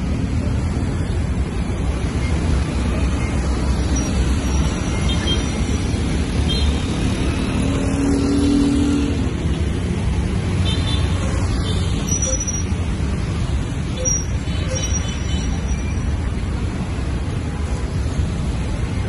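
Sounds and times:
motorbike and car engines passing: 0:00.0 - 0:14.8.

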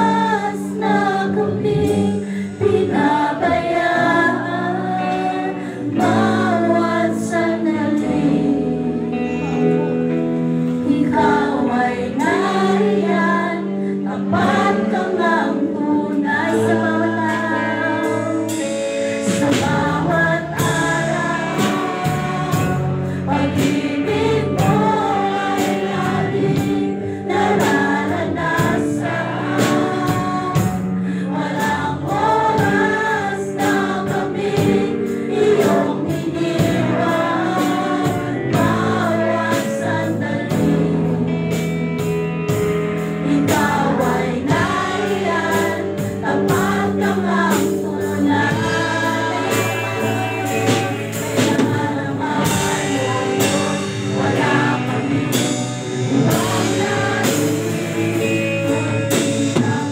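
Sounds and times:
woman singing into a microphone: 0:00.0 - 0:10.1, 0:10.7 - 0:41.6, 0:43.1 - 0:59.9
acoustic guitar: 0:00.0 - 0:59.9
bass guitar: 0:00.0 - 0:59.9
electric guitar: 0:00.0 - 0:59.9
steady drum beat: 0:18.2 - 0:41.1, 0:42.1 - 0:59.9.

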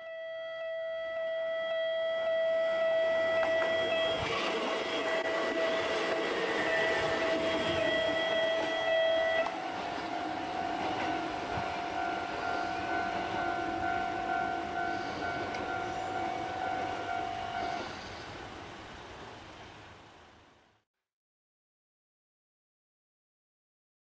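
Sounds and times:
electric train rumbling past: 0:00.0 - 0:20.7
level crossing bell ringing: 0:05.1 - 0:17.8.

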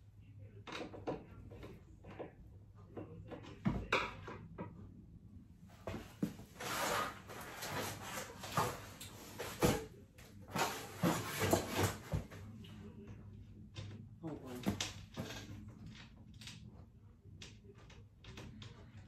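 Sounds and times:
rustling and shuffling: 0:05.6 - 0:16.1.

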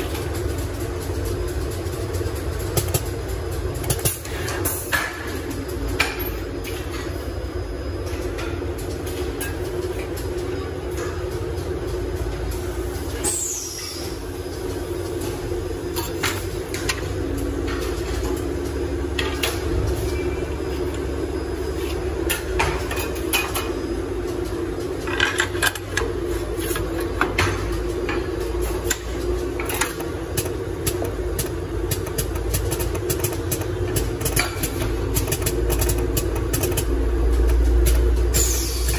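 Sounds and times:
machine humming: 0:00.0 - 0:38.9
mechanical clicks and taps: 0:29.6 - 0:38.1.

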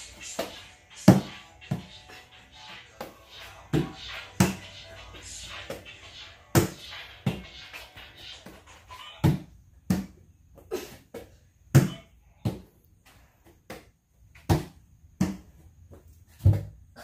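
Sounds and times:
thumps of person landing on floor: 0:16.4 - 0:16.8.

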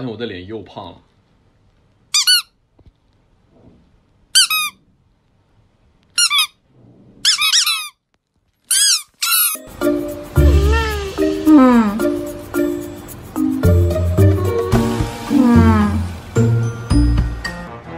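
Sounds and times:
squeaky toy squeaks: 0:02.1 - 0:02.6, 0:04.4 - 0:04.8, 0:06.2 - 0:06.6, 0:07.2 - 0:08.0, 0:08.7 - 0:09.7, 0:10.4 - 0:11.2.

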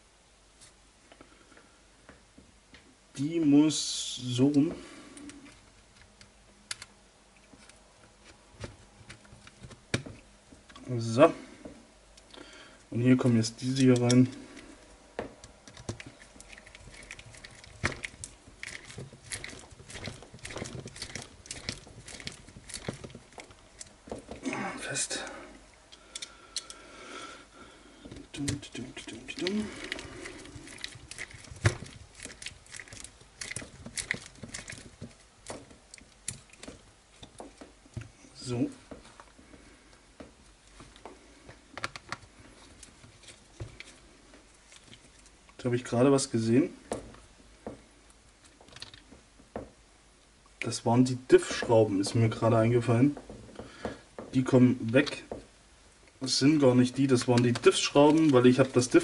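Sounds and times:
small clicks and taps of parts: 0:04.5 - 0:10.8, 0:25.9 - 0:26.8, 0:39.9 - 0:44.0, 0:48.4 - 0:49.7
screwdriver and screws clicking on plastic: 0:13.7 - 0:14.3, 0:15.4 - 0:24.4, 0:29.3 - 0:38.1.

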